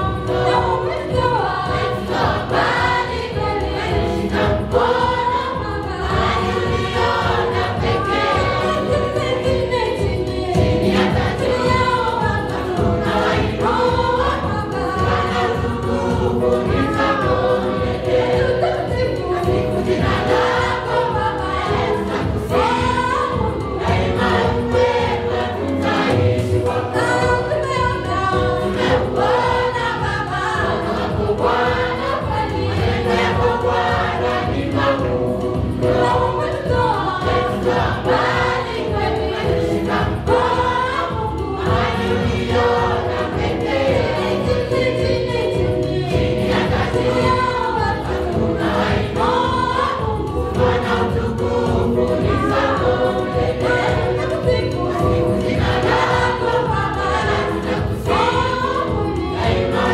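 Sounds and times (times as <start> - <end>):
choir singing gospel: 0.0 - 59.9
woman leading singing: 35.8 - 59.9.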